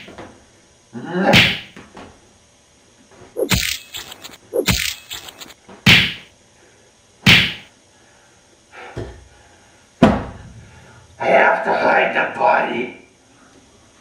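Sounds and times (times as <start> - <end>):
hard whacks and thuds: 1.3 - 1.8, 5.8 - 6.3, 7.2 - 7.7.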